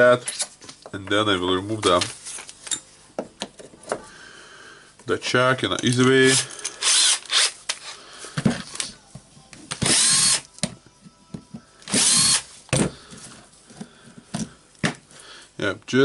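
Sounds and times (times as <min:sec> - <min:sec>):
cordless drill whirring: 0:06.3 - 0:07.9, 0:09.8 - 0:10.4, 0:11.9 - 0:12.5.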